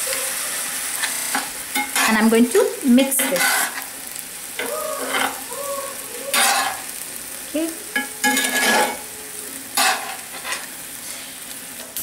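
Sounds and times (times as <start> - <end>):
sauce sizzling: 0.0 - 12.0
spatula scraping a skillet: 3.2 - 3.9, 4.6 - 5.4, 6.3 - 6.9, 8.0 - 9.0, 9.8 - 11.4.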